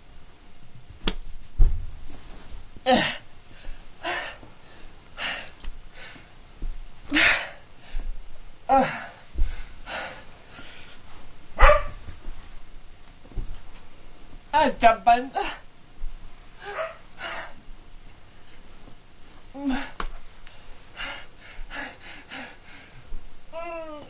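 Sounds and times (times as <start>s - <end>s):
dull thumps of body movement: 0.8s - 4.6s, 5.6s - 14.5s
man's strained involuntary cries: 2.9s - 3.3s.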